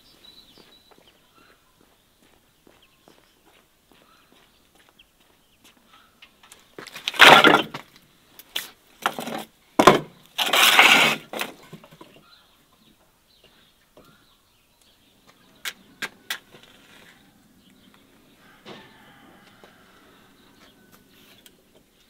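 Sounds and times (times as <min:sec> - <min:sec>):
logs scraping: 0:06.8 - 0:12.2, 0:16.0 - 0:17.4
logs knocking together: 0:06.9 - 0:08.0, 0:09.0 - 0:12.2.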